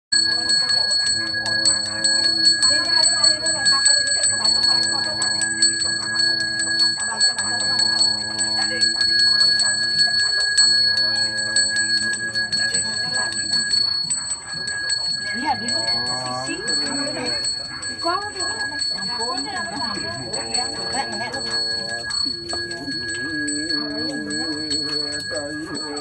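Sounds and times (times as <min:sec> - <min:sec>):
brass hand bell ringing: 0:00.1 - 0:26.0
man chanting: 0:15.7 - 0:17.4, 0:19.8 - 0:26.0.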